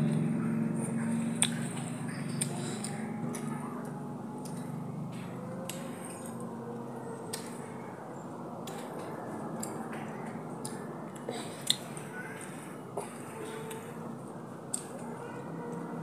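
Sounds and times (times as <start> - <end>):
wet squishy eating noises: 0.0 - 8.0
steady background noise: 0.0 - 16.0.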